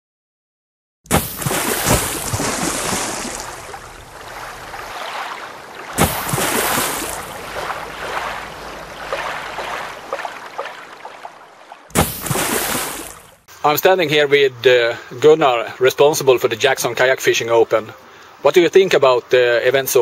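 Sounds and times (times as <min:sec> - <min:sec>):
water rushing and splashing: 0:01.1 - 0:13.5.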